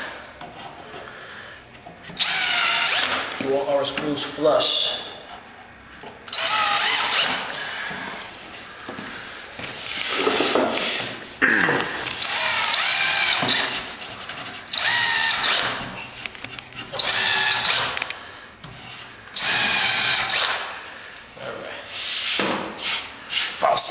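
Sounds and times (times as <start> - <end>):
cordless drill whining: 2.2 - 3.2, 6.3 - 7.9, 12.1 - 13.8, 14.7 - 15.8, 16.9 - 18.1, 19.3 - 20.7.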